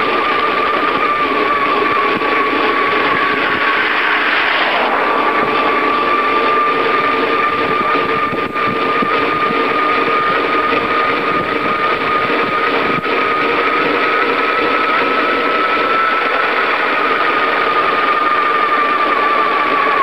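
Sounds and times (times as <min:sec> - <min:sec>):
bicycle road noise whirring: 0:00.0 - 0:20.0
constant high whine: 0:00.0 - 0:20.0
car passing: 0:03.2 - 0:07.9.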